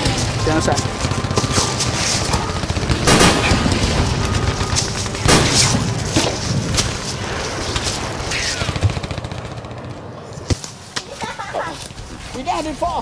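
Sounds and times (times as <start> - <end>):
sharp strikes: 0.0 - 8.8
dense gunfire: 0.0 - 10.0.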